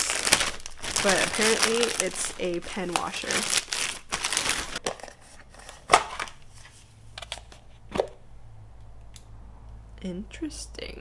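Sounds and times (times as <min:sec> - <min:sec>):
plastic bag crinkling: 0:00.0 - 0:04.9.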